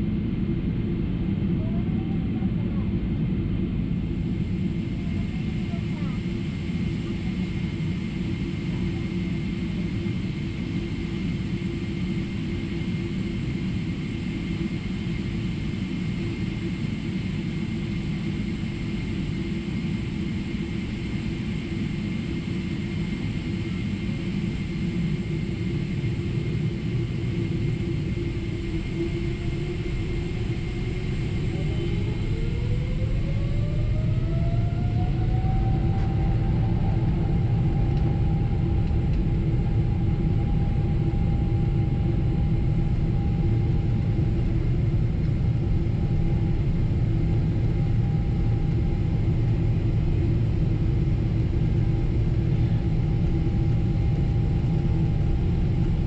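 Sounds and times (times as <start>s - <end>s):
airplane cabin rumble: 0.0s - 56.0s
jet engine whine: 0.0s - 56.0s.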